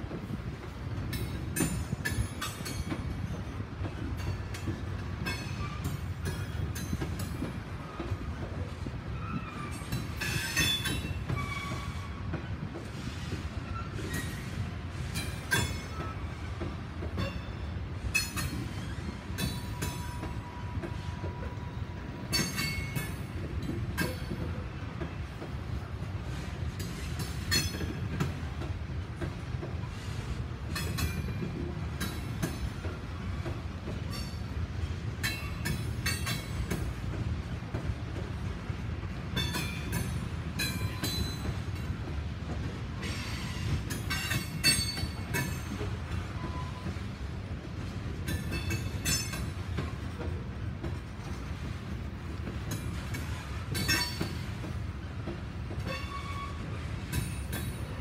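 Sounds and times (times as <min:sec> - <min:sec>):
train wheels rumbling on rail: 0:00.0 - 0:58.0
wheel squeal: 0:09.1 - 0:12.2.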